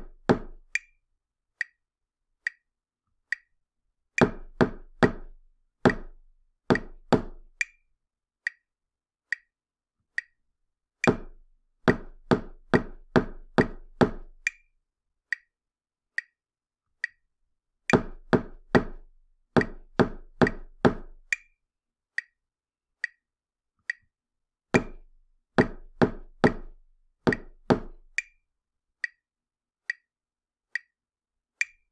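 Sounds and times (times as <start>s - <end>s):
click beat: 0.0s - 1.0s, 4.2s - 7.8s, 11.0s - 14.7s, 17.9s - 21.6s, 24.8s - 28.4s, 31.6s - 31.9s.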